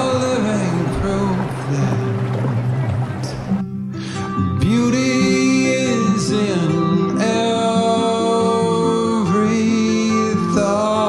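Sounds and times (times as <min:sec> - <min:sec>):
acoustic guitar: 0:00.0 - 0:11.0
person singing long bending notes: 0:04.0 - 0:11.0.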